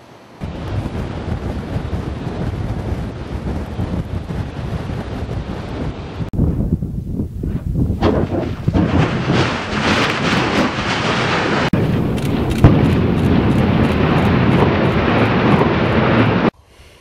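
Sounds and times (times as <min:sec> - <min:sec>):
volcano roaring: 0:08.0 - 0:16.5.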